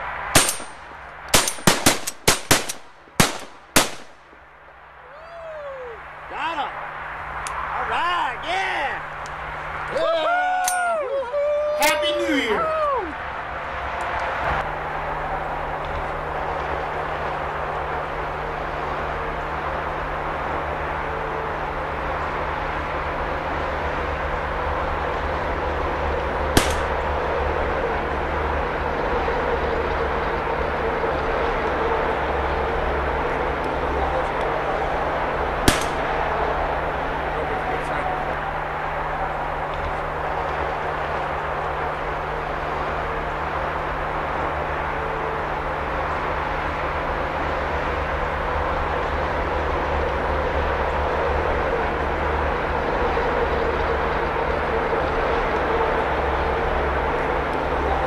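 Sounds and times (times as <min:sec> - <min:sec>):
low background rumble: 0:00.0 - 0:58.0
shotgun blasts: 0:00.4 - 0:04.3, 0:26.6 - 0:27.0, 0:35.6 - 0:36.3.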